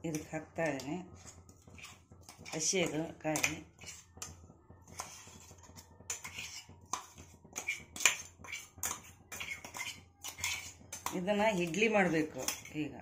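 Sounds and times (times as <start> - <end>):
steel spoon scraping metal container: 0.0 - 13.0.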